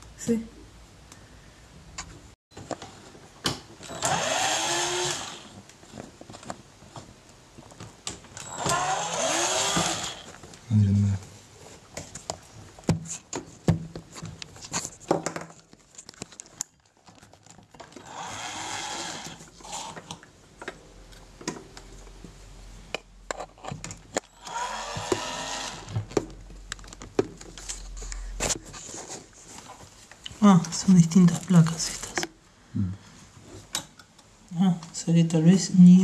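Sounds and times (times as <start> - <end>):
clicks and rattles of parts handled: 14.1 - 18.0.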